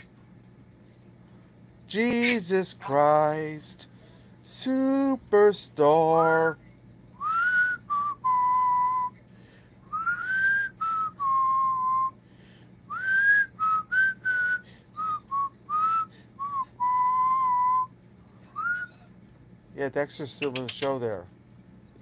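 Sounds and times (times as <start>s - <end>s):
parrot whistling: 9.9s - 12.1s, 18.5s - 19.0s.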